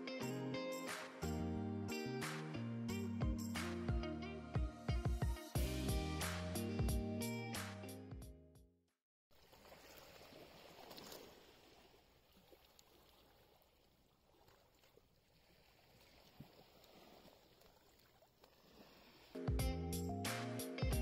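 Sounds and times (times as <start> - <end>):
sea water lapping against boulders: 9.4 - 19.4.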